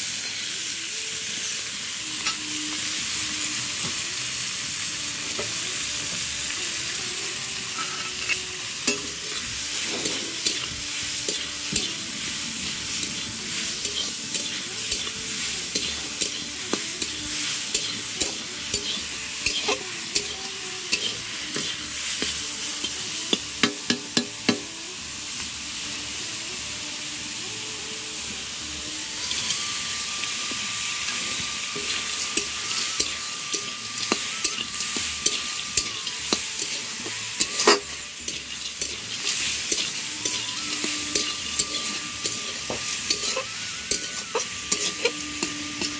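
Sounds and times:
leaves sizzling in a pan: 0:00.0 - 0:45.9
utensil stirring and scraping: 0:07.9 - 0:22.4, 0:31.0 - 0:45.9.

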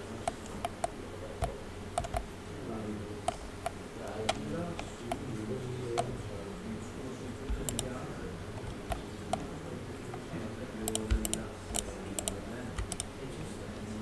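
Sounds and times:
keyboard and mouse clicking: 0:00.2 - 0:02.3, 0:07.5 - 0:07.9, 0:08.6 - 0:09.5, 0:10.8 - 0:13.1.

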